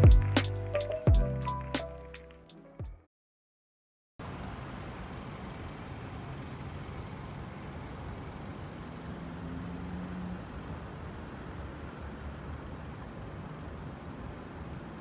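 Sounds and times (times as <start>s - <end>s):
hum of road noise: 4.2s - 15.0s
car driving past: 8.5s - 11.0s.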